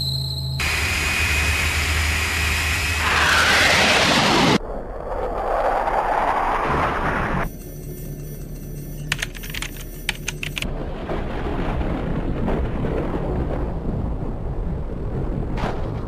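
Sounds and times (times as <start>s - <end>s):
low rumble: 0.2s - 9.1s, 10.6s - 16.0s
loud flight whoosh: 0.6s - 7.5s
quick run of clicks: 9.0s - 10.7s.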